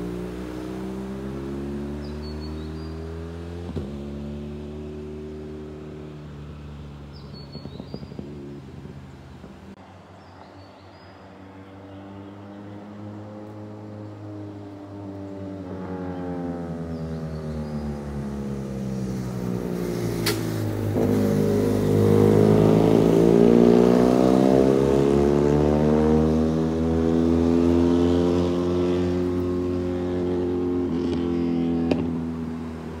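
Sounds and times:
motorcycles riding past: 0.0s - 33.0s.

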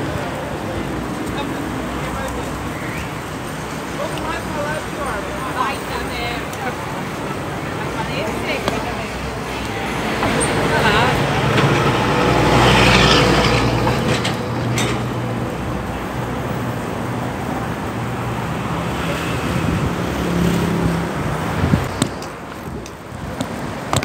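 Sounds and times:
road traffic: 0.0s - 24.0s.

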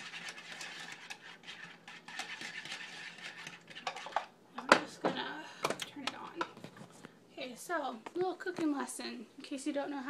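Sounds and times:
whisk scraping in a pot: 0.0s - 4.4s.

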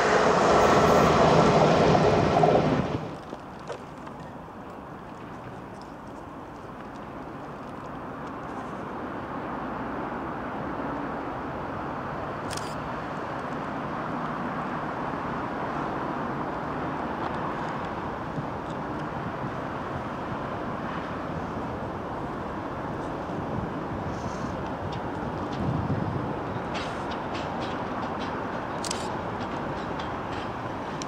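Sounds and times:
locomotive diesel engine drone: 0.0s - 3.2s.

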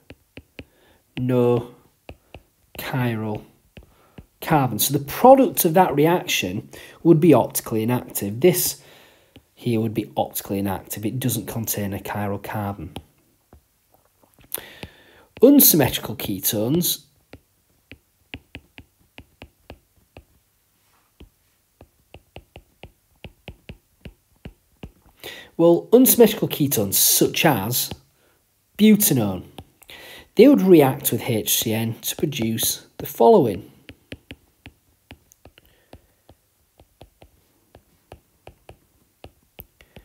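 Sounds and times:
stylus tapping on glass screen: 0.0s - 1.3s, 2.0s - 4.4s, 17.3s - 20.4s, 21.2s - 25.2s, 33.8s - 40.0s.

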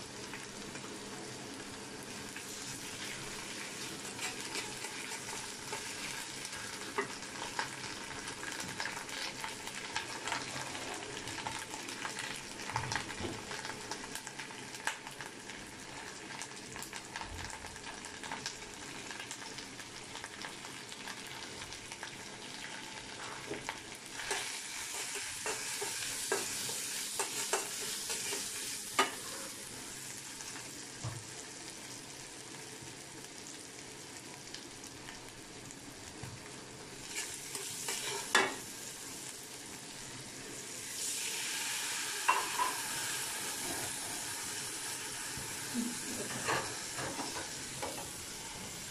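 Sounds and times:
onions sizzling in oil: 0.0s - 48.9s
metal spatula stirring and scraping: 4.1s - 6.0s, 24.2s - 29.6s, 37.1s - 38.4s.

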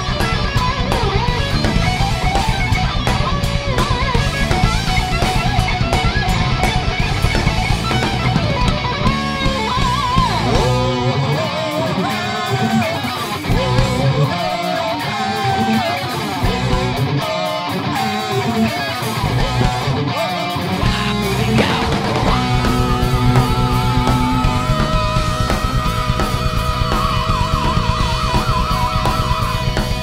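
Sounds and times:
heavy metal band playing live: 0.0s - 30.0s
lead electric guitar bent notes: 0.0s - 30.0s.

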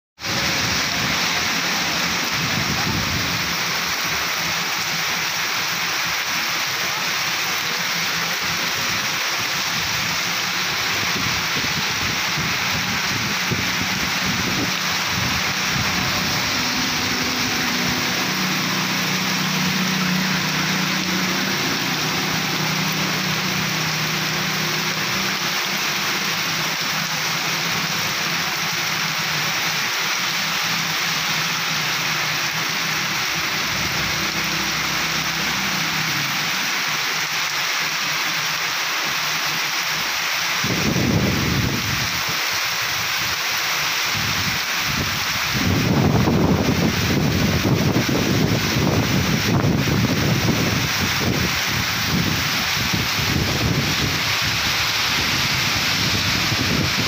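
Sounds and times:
heavy rain pouring on street: 0.2s - 57.0s
vehicle engine hum: 0.3s - 38.6s.

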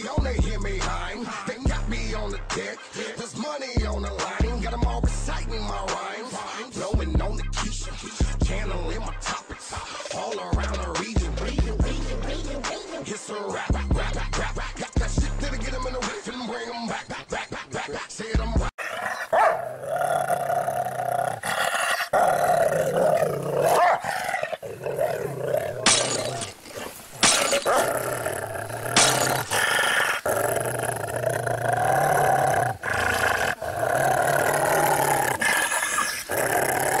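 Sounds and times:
background music with low bass: 0.0s - 17.1s, 18.2s - 18.7s
dog growling: 18.8s - 37.0s.

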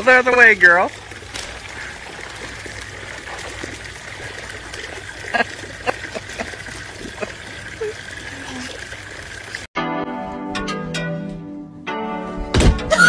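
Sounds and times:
water trickling: 0.0s - 9.7s.

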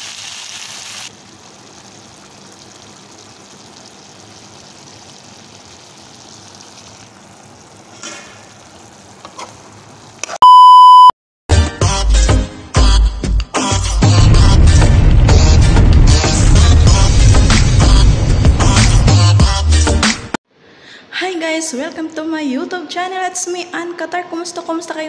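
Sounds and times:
vegetables sizzling in a wok: 0.0s - 10.2s
loud electronic beep: 10.4s - 11.1s.

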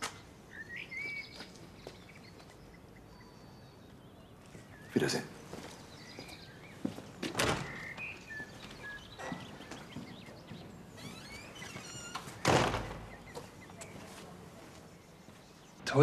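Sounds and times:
small birds chirping: 0.0s - 16.0s
door thudding: 7.2s - 8.0s, 11.0s - 13.4s.

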